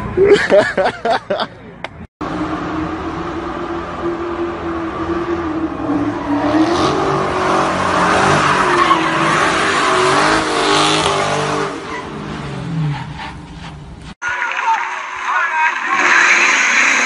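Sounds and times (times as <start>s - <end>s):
car engine revving: 2.2s - 13.7s, 15.8s - 17.0s
tyres squealing: 7.7s - 10.4s.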